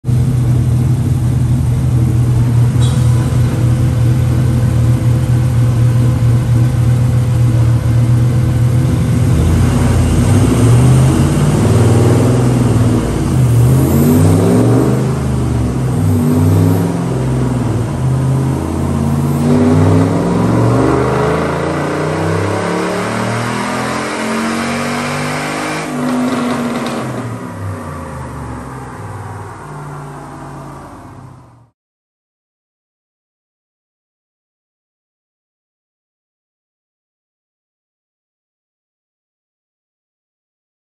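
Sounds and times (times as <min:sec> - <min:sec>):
engine revving under load: 0:08.6 - 0:31.7.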